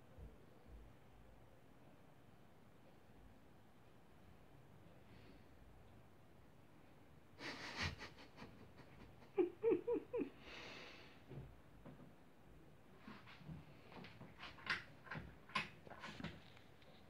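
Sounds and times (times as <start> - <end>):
man chuckling softly: 7.4 - 10.4.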